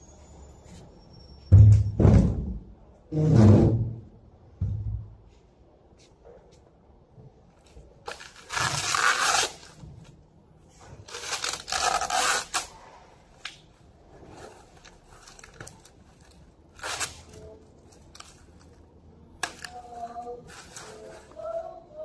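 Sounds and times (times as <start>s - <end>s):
plastic film ripping: 8.0s - 9.8s, 11.0s - 13.6s, 14.4s - 18.8s
plastic crinkling: 10.8s - 22.0s.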